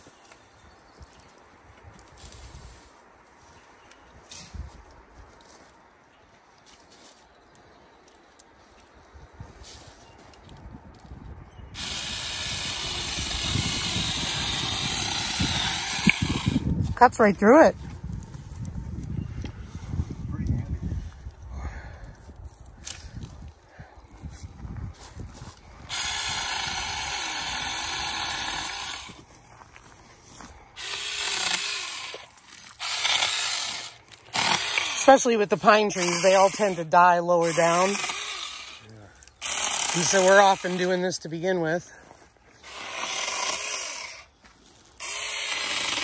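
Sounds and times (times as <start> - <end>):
electric chainsaw cutting wood: 11.8 - 16.8, 25.9 - 29.3, 30.8 - 38.8, 39.4 - 41.2, 42.6 - 44.3, 45.0 - 46.0.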